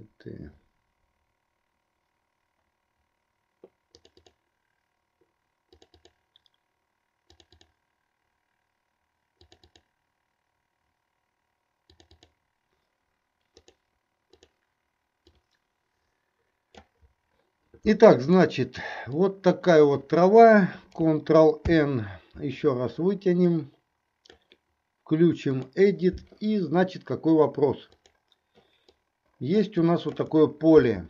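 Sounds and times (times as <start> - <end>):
computer mouse clicks: 3.6 - 4.4, 5.7 - 6.6, 7.3 - 7.8, 9.4 - 9.9, 11.9 - 12.4, 13.4 - 14.6, 15.2 - 15.6, 16.7 - 17.1, 24.2 - 24.6, 27.9 - 29.0.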